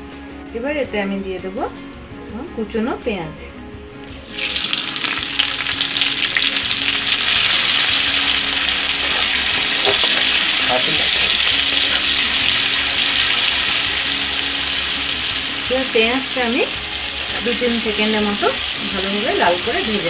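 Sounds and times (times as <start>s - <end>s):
onions sizzling in oil: 4.1s - 20.0s.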